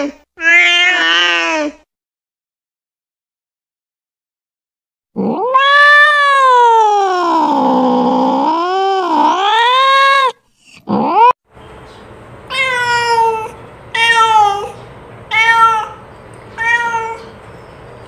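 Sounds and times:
cat meowing: 0:00.4 - 0:01.8, 0:05.2 - 0:11.3, 0:12.5 - 0:17.4.

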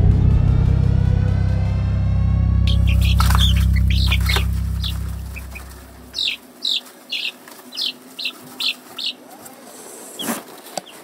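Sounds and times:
chicks peeping: 0:02.7 - 0:11.0.

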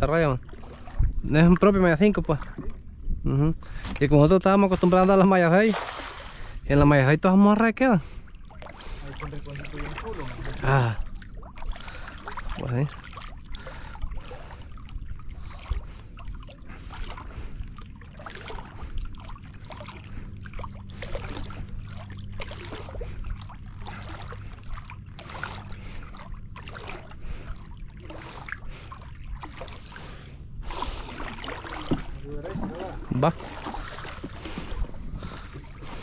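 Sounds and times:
water sloshing and dripping: 0:00.0 - 0:03.0, 0:03.6 - 0:36.0
net splashy swishes: 0:04.7 - 0:06.4.

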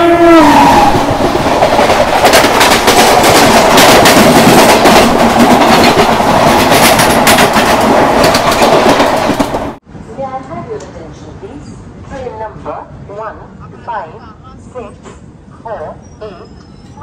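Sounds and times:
train horn: 0:00.0 - 0:01.2
rush of train wheels and wind: 0:00.0 - 0:17.0
wheels clacking over rail joints: 0:01.0 - 0:09.8.

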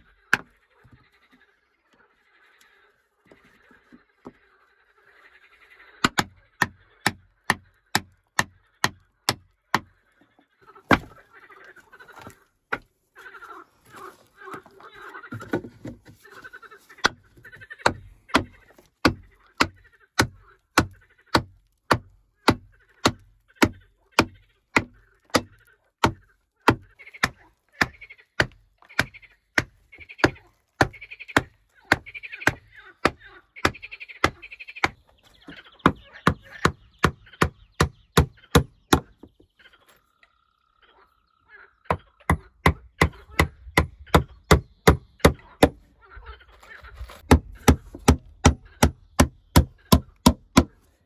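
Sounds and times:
hammer striking wooden boards: 0:10.9 - 0:11.1, 0:35.8 - 0:39.3, 0:41.9 - 0:45.8, 0:47.3 - 0:50.8.

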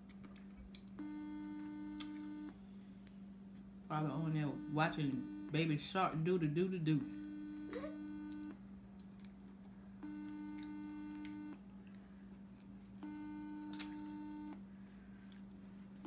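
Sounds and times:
low steady hum: 0:00.0 - 0:16.0
phone ringback tone: 0:01.0 - 0:02.6, 0:04.2 - 0:05.5, 0:07.0 - 0:08.5, 0:10.0 - 0:11.6, 0:13.0 - 0:14.5.

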